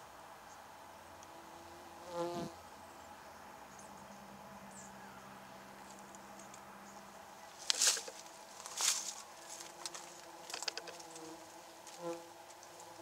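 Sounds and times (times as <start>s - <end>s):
faint bees humming: 0.0s - 13.0s
quiet clicks: 9.8s - 11.3s.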